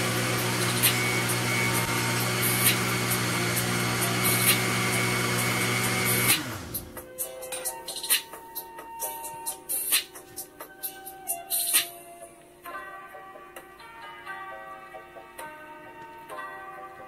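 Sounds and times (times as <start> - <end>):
blender motor winding down: 0.0 - 7.0
blender running: 0.0 - 7.0.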